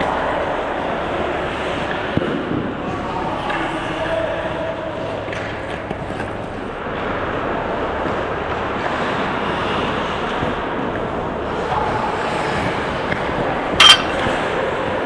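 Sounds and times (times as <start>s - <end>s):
ice hockey skating and play: 0.0s - 15.0s
sharp ringing clink: 13.8s - 14.3s.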